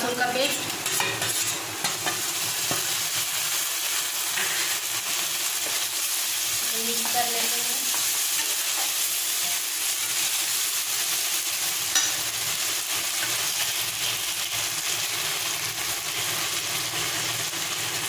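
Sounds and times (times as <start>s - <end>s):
onions sizzling in hot oil: 0.0s - 18.0s
spatula scraping pan: 0.8s - 3.0s.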